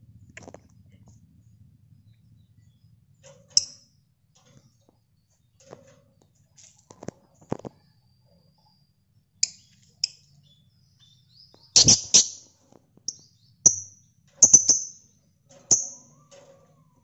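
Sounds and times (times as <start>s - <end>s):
lovebirds chirping: 7.0s - 16.3s.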